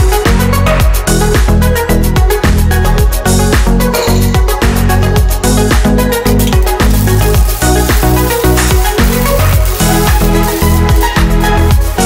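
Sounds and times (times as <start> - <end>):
electronic dance music: 4.4 - 12.0.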